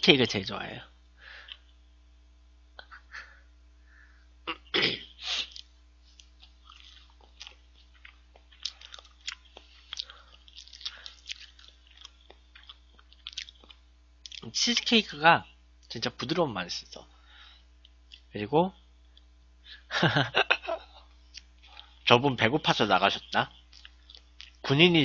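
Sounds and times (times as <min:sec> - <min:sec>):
wet mouth clicks and lip smacks: 0:05.4 - 0:14.4
chewing soft food: 0:05.4 - 0:14.9, 0:17.7 - 0:18.3, 0:21.0 - 0:22.2, 0:23.0 - 0:24.7.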